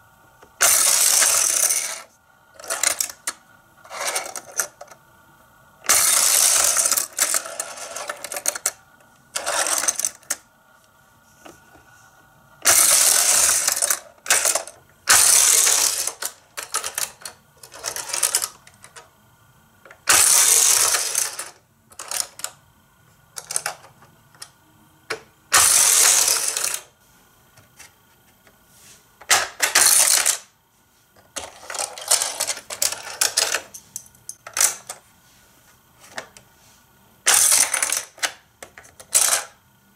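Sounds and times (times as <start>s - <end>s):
toy cars rattling on plastic track: 0.6s - 5.0s, 5.8s - 10.4s, 12.6s - 19.1s, 20.0s - 22.6s, 23.4s - 23.9s, 25.5s - 26.9s, 29.3s - 30.5s, 31.4s - 33.7s, 37.3s - 39.6s.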